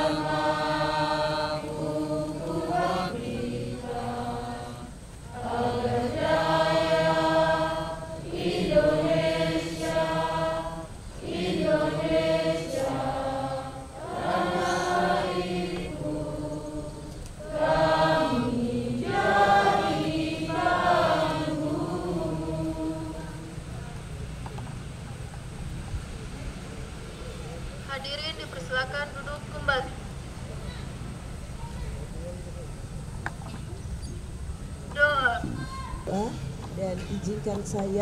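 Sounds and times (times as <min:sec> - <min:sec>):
group singing in unison: 0:00.0 - 0:23.7.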